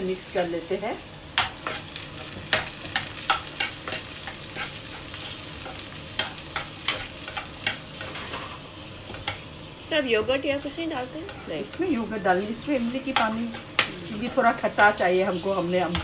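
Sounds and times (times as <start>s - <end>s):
food frying in oil: 0.0s - 16.0s
metal spoon scraping a wok: 1.4s - 9.4s, 11.2s - 11.8s.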